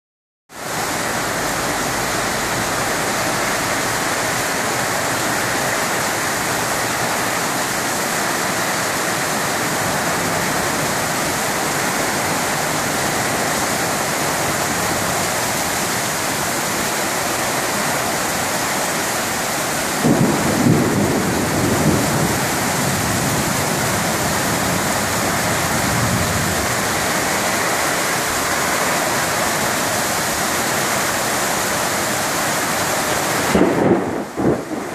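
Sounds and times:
heavy rain falling: 0.5s - 34.9s
thunder rumbling: 19.8s - 27.9s, 33.3s - 34.9s.

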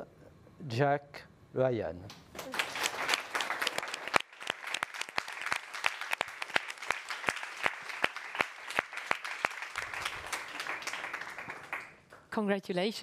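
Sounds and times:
sharp individual hand claps: 2.1s - 12.0s
audience applause: 2.4s - 12.0s.

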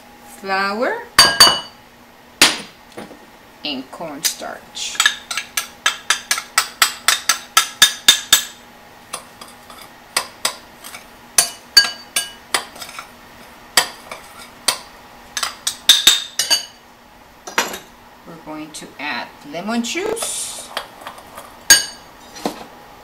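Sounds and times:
spoon clinking against glass bowl: 21.7s - 22.0s.

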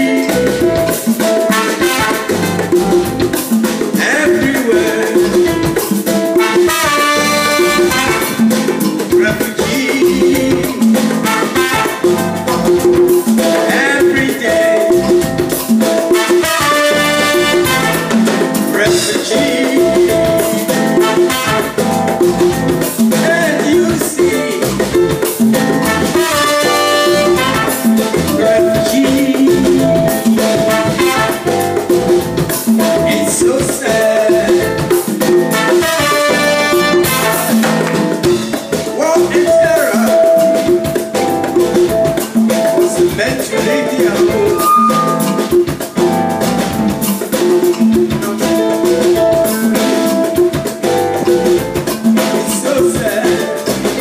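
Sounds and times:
live band playing: 0.0s - 54.0s
horn riffs: 1.5s - 3.2s, 6.4s - 8.8s, 11.2s - 12.6s, 16.1s - 18.7s, 21.0s - 22.1s, 25.8s - 29.3s, 30.5s - 31.8s, 35.5s - 38.5s, 44.3s - 45.8s.

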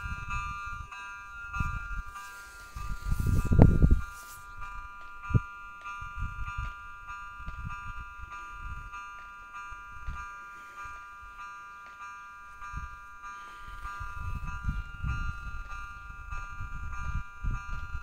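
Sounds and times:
wind rumbling on microphone: 0.0s - 9.0s, 13.6s - 18.0s
level crossing warning bell: 0.0s - 18.0s.

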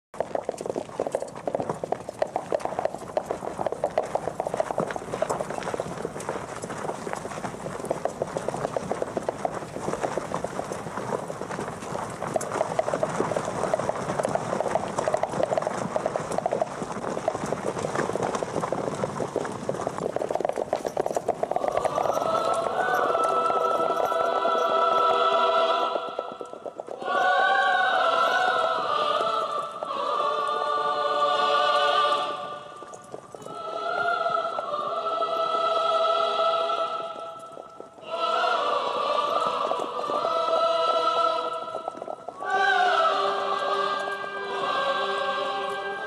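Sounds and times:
horses galloping: 0.2s - 46.0s
music: 21.8s - 26.3s, 33.6s - 37.2s, 42.4s - 46.0s.

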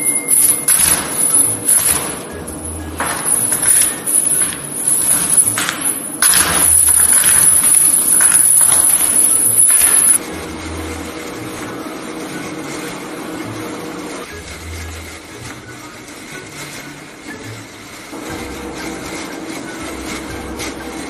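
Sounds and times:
steady hiss: 0.0s - 21.0s
rope dragged through gravel: 6.6s - 21.0s.

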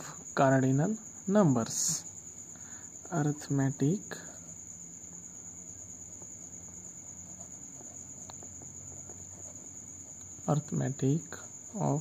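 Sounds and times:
faint low hum: 0.0s - 12.0s
pen writing on paper: 6.0s - 10.5s.

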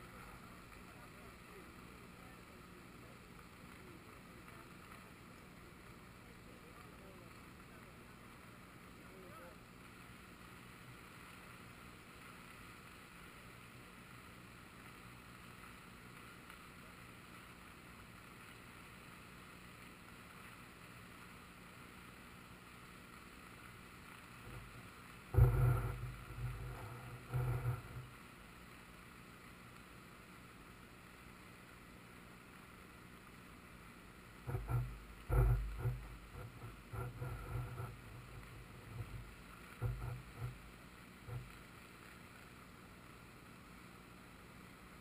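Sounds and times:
deep thumps and rumbles: 24.4s - 28.1s, 34.5s - 40.7s.

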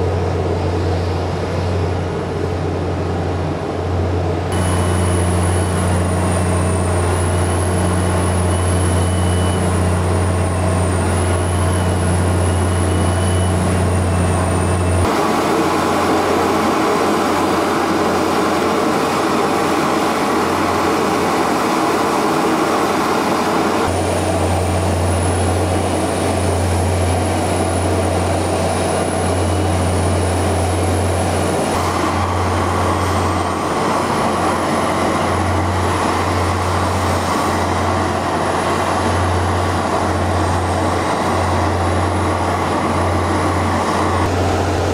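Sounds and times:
low drone of ground equipment: 0.0s - 44.9s
rushing noise: 0.0s - 44.9s
faint wavering high whine: 4.5s - 19.5s.

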